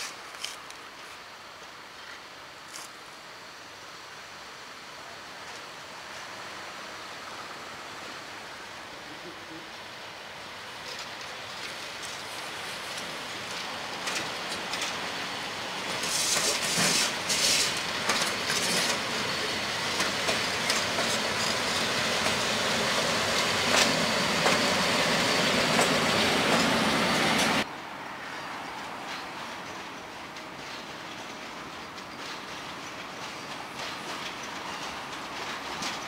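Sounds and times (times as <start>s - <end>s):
electric locomotive passing: 1.6s - 36.0s
wheels clattering over rail joints: 10.8s - 27.7s, 29.0s - 36.0s.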